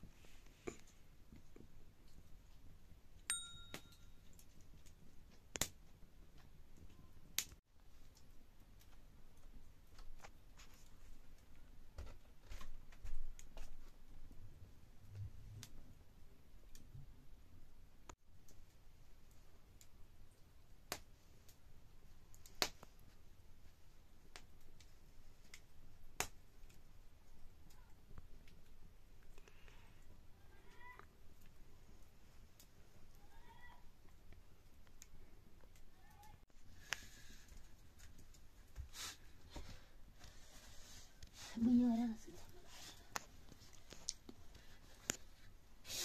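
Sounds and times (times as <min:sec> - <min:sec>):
wood fire crackling and popping: 0:00.4 - 0:14.4, 0:15.6 - 0:17.1, 0:18.1 - 0:45.9
click with ringing tone: 0:03.3 - 0:04.2.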